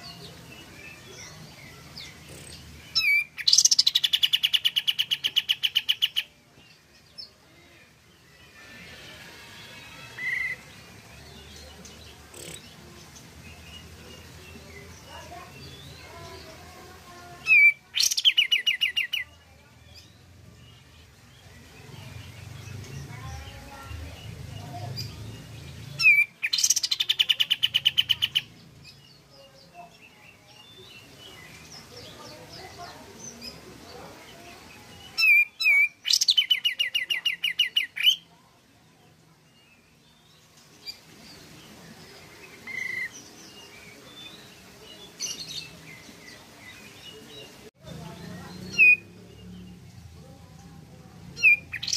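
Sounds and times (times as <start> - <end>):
bulbul singing: 0.0 - 6.4, 51.2 - 51.9
faint chirping of birds: 0.0 - 51.9.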